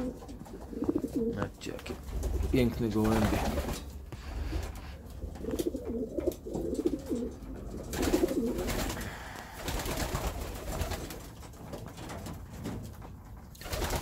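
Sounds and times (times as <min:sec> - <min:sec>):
pigeons cooing: 0:00.0 - 0:01.4, 0:03.5 - 0:11.1.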